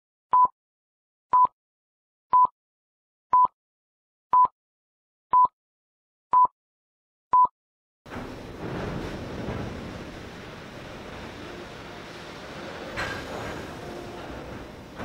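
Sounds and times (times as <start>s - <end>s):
steady rushing noise: 8.1s - 15.0s.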